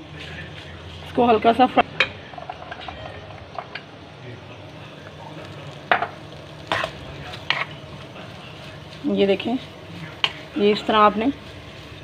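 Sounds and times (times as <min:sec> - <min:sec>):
chicken sizzling in oil in a wok: 0:05.3 - 0:12.0
spatula scraping a pan: 0:06.6 - 0:12.0.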